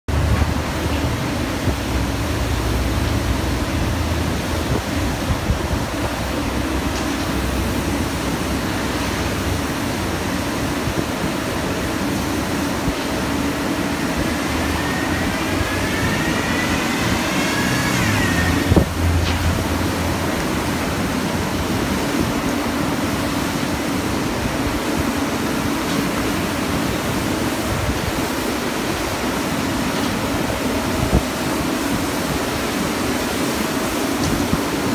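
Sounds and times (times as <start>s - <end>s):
street sweeper engine and brooms: 0.1s - 34.9s
high rising squeal: 13.0s - 21.9s.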